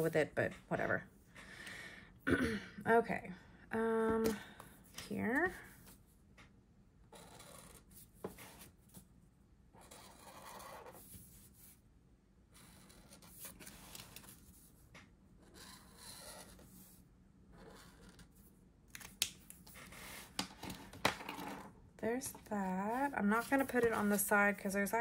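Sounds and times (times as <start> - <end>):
brush pen scratching on paper: 7.1 - 8.7, 9.8 - 11.8, 12.6 - 14.6, 15.4 - 17.0.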